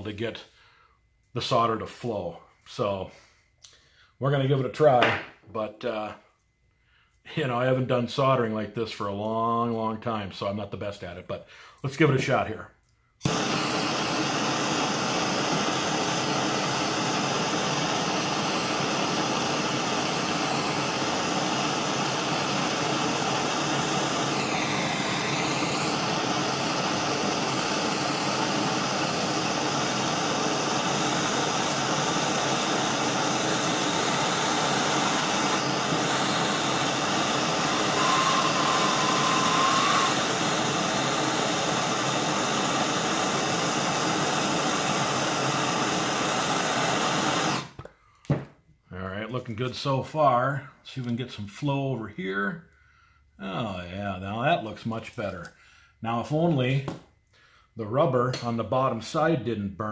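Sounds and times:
gas torch hissing: 13.2 - 47.8
short steady whistle: 13.3 - 43.4
gliding whistle: 36.4 - 41.0.

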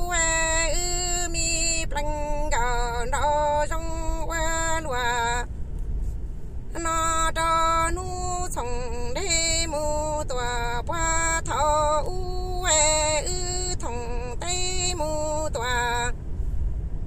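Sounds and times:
woman singing chanted poem: 6.8 - 16.1.

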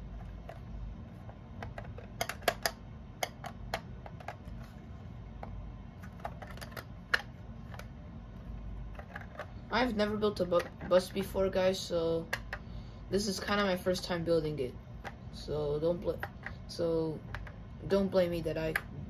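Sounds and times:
plastic bricks clicking: 1.6 - 4.5, 6.0 - 7.9.

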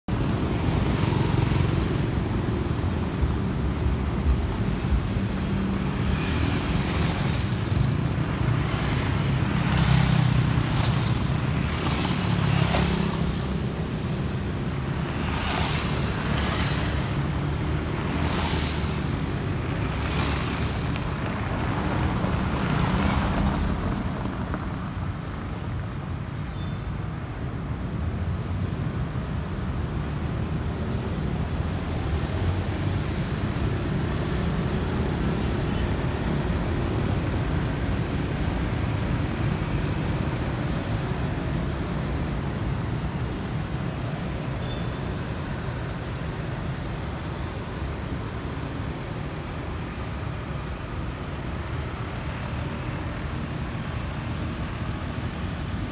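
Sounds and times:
motorbikes passing: 0.2 - 24.5.

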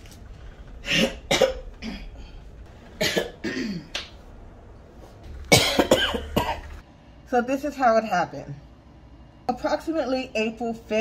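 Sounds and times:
woman coughing: 0.8 - 2.3, 3.0 - 3.9, 5.5 - 6.8.

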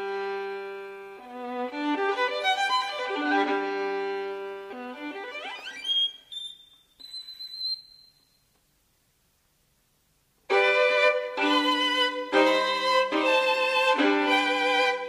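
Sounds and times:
solo violin playing: 0.0 - 6.3, 10.5 - 15.0.

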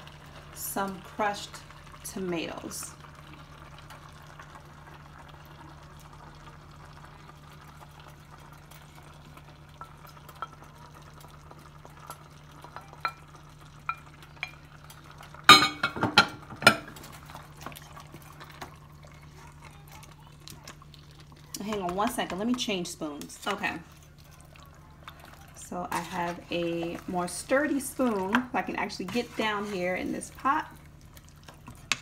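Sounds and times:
wooden spoon stirring stew: 16.9 - 32.0.

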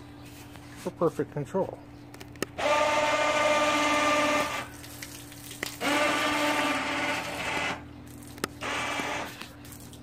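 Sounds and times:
electric winch motor whining: 2.6 - 4.7, 5.8 - 7.9, 8.6 - 9.4.

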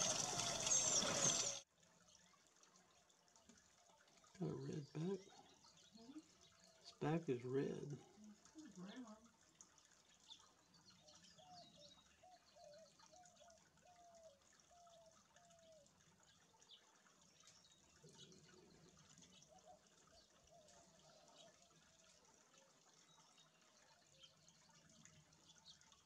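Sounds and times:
water trickling and dripping: 0.0 - 26.0.

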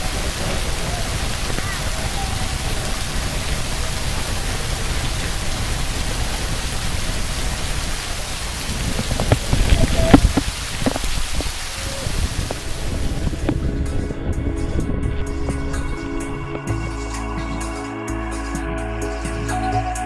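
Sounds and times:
waterfall spray hiss: 0.0 - 14.0
wind buffeting microphone: 0.0 - 18.2.

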